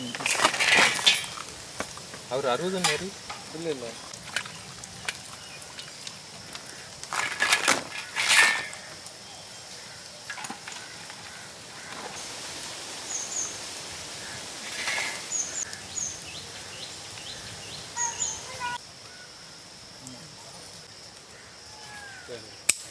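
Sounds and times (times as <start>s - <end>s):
high bird chirps: 15.2s - 18.8s.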